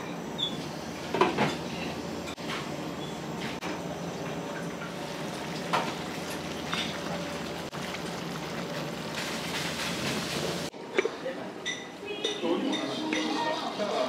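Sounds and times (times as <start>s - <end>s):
sauce bubbling and sizzling: 4.7s - 10.7s.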